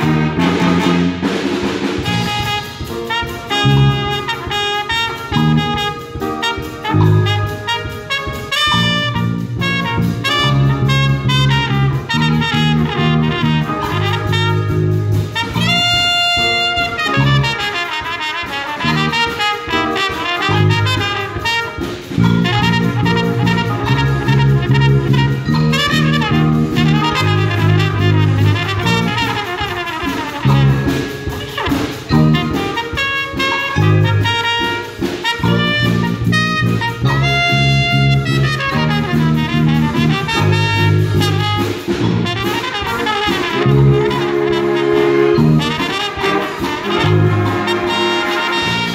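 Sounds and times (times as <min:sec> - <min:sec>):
bass line: 0:00.0 - 0:48.9
jazz big band playing: 0:00.0 - 0:48.9
lead trumpet: 0:00.0 - 0:48.9.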